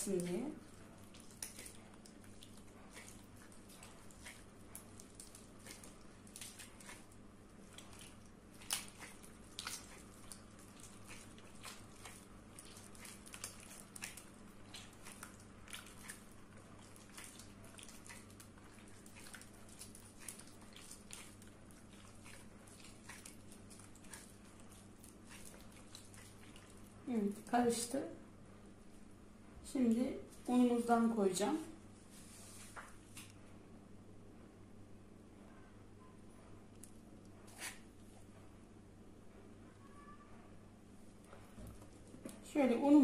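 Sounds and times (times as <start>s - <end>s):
wet squelches and splashes: 0.0s - 27.9s.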